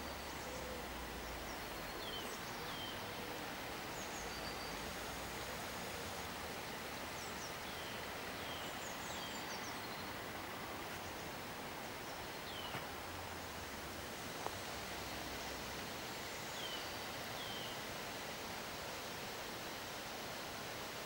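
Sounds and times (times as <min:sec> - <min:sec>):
faint outdoor background hiss: 0:00.0 - 0:21.0
small birds chirping: 0:06.7 - 0:13.8.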